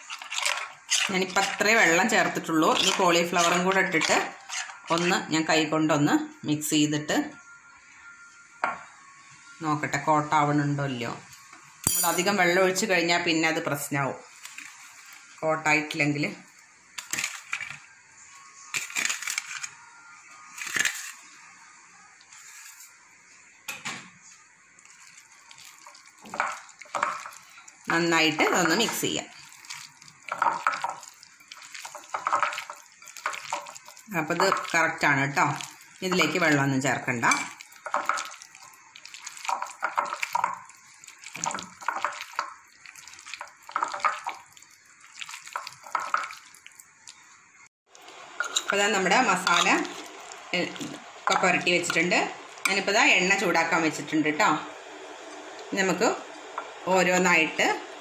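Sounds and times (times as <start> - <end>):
hand mixing wet batter: 0.0 - 5.5, 24.8 - 47.3, 47.9 - 54.5.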